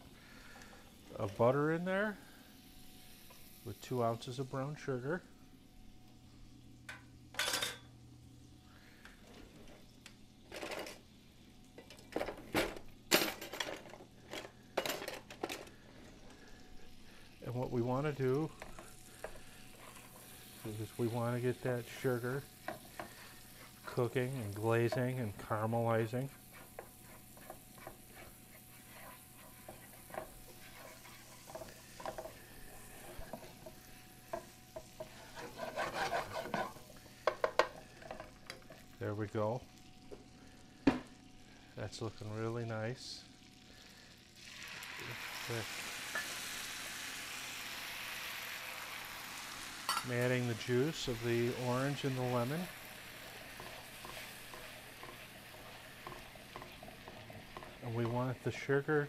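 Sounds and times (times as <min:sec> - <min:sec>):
butter and sugar sizzling in a skillet: 0:00.0 - 0:13.1, 0:14.0 - 0:59.0
spatula scraping a pan: 0:18.2 - 0:38.8, 0:50.6 - 0:58.5.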